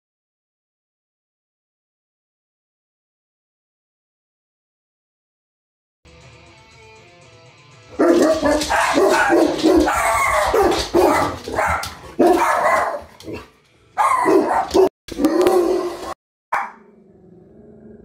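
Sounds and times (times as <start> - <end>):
dog barking loudly: 7.9 - 16.8.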